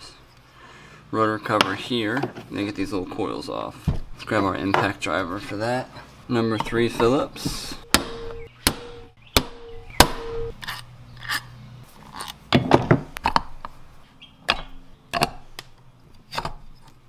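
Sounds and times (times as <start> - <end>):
hammer striking impact driver: 7.9 - 10.5.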